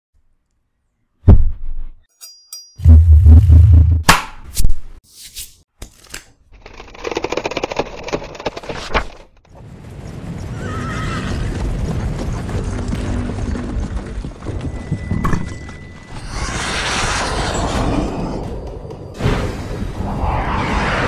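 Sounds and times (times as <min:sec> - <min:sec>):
horse whinnying: 0:10.6 - 0:11.6
rush of noise: 0:19.2 - 0:21.0.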